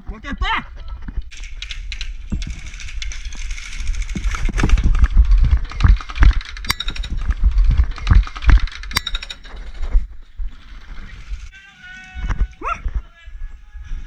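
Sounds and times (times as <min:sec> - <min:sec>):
wind buffeting on camera: 0:00.0 - 0:11.5
gear rattling: 0:01.2 - 0:11.5.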